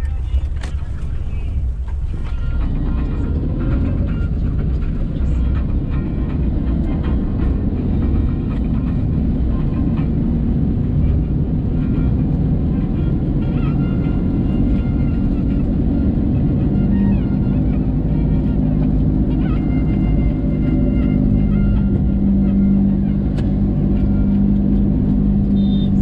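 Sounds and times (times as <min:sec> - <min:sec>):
car engine and road rumble: 0:00.0 - 0:26.0.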